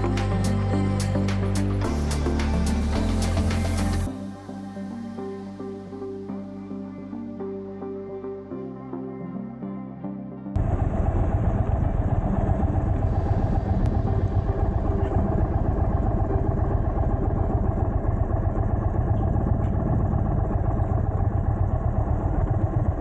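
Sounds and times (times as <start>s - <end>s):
motorcycle engine rumbling: 10.6s - 23.0s
road and wind noise: 10.6s - 23.0s.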